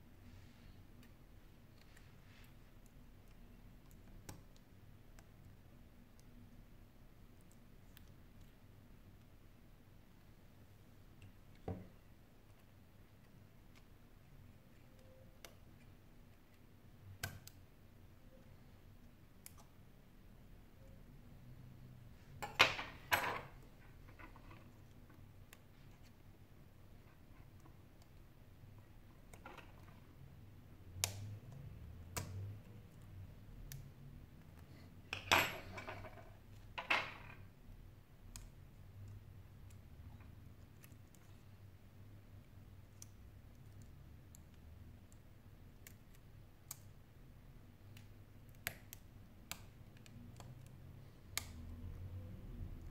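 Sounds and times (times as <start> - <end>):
tweezers clicking on plastic: 14.7 - 17.7, 30.8 - 34.6, 42.8 - 47.2, 47.8 - 52.0.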